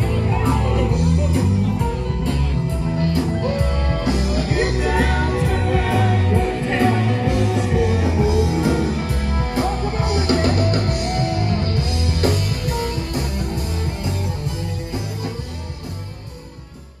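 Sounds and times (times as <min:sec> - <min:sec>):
person singing: 0:00.0 - 0:12.3
rock band playing: 0:00.0 - 0:17.0.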